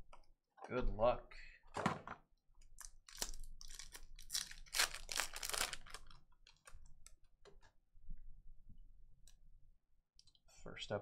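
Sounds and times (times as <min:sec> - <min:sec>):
foil wrapper crinkling: 0:02.8 - 0:06.8.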